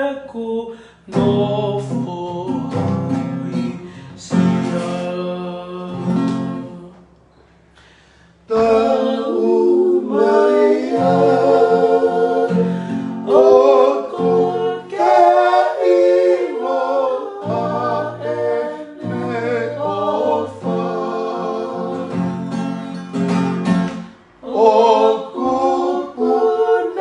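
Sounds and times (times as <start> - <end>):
man singing a hymn: 0.0 - 7.0, 16.4 - 21.9
acoustic guitar: 0.0 - 27.0.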